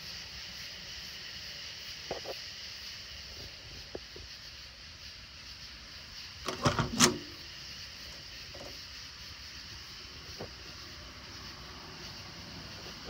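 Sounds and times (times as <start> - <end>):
faint high hiss: 0.0 - 13.0
car door clunks and clicks: 6.5 - 7.4.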